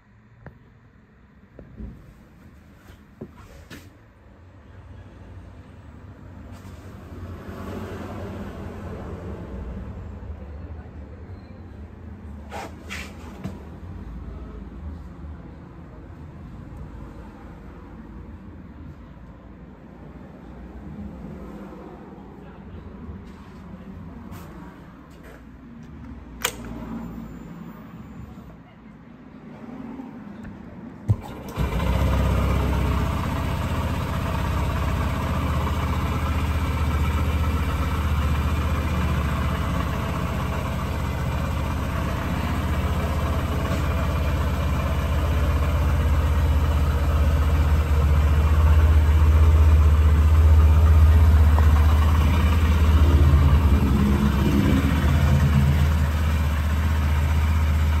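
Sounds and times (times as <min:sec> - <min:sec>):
motorcycle engine starting and idling: 0:26.4 - 0:27.0, 0:31.0 - 0:58.0.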